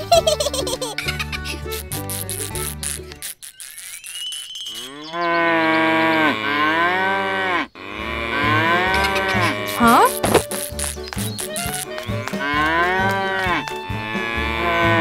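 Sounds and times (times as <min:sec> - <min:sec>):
cow mooing: 0:04.9 - 0:10.0, 0:12.0 - 0:15.0.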